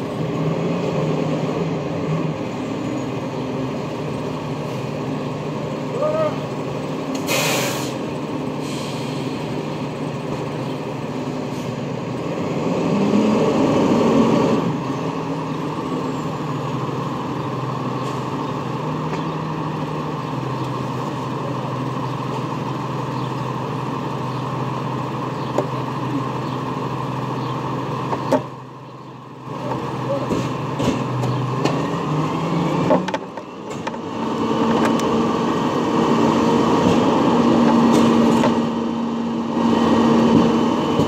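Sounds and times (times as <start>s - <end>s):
garbage truck engine running: 0.0s - 41.0s.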